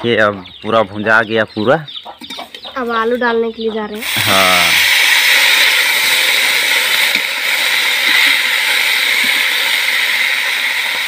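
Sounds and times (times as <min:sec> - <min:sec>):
potatoes sizzling in oil: 0:04.0 - 0:11.0.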